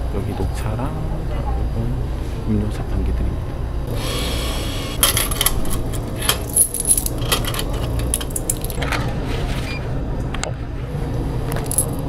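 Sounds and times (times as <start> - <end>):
steady low hum: 0.0 - 12.0
coins clinking into tray: 5.0 - 8.8, 11.6 - 12.0.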